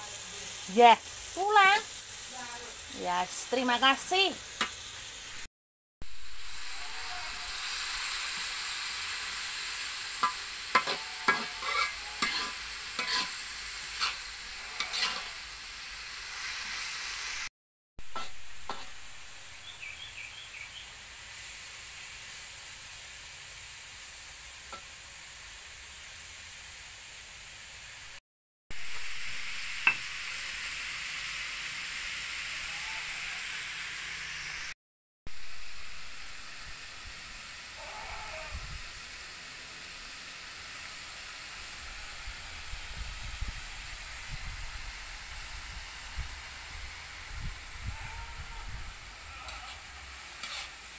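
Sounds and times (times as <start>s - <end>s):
food sizzling in a wok: 0.0s - 50.9s
metal spatula scraping a pan: 9.2s - 15.7s, 18.1s - 19.1s, 49.4s - 50.9s.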